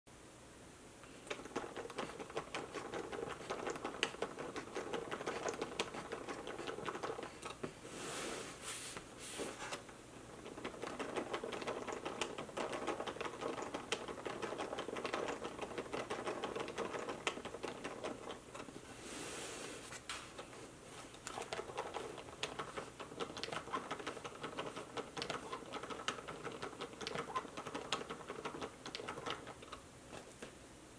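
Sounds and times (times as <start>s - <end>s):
plastic gears clicking and clattering: 10.3s - 18.7s, 21.3s - 29.8s.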